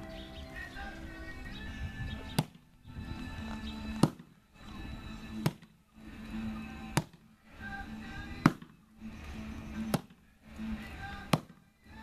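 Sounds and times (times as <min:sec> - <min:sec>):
axe chopping into tree trunk: 0:02.4 - 0:02.6, 0:04.0 - 0:04.3, 0:05.4 - 0:05.8, 0:06.9 - 0:07.2, 0:08.4 - 0:08.7, 0:09.9 - 0:10.2, 0:11.3 - 0:11.6.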